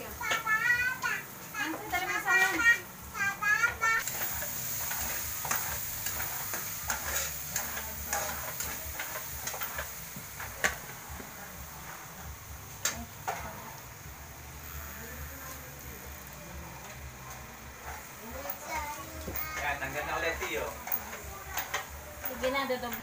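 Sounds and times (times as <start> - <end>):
meat sizzling in frying pan: 0.0 - 23.0
metal spatula scraping and tapping pan: 4.1 - 9.9.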